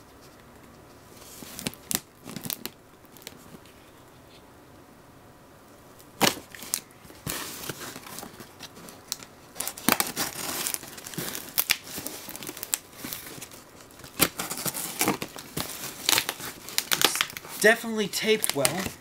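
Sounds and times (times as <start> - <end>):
tape crinkling: 0.2 - 4.0, 6.0 - 19.0
packing tape ripping: 6.2 - 19.0.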